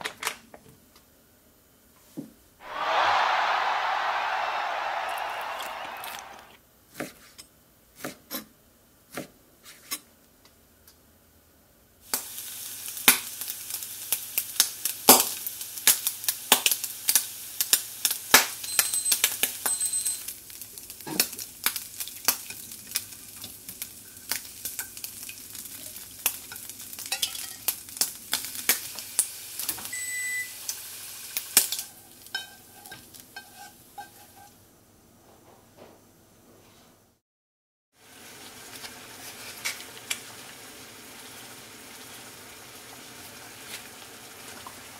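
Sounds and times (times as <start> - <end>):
bacon sizzling in frying pan: 12.0 - 34.3, 38.0 - 44.9.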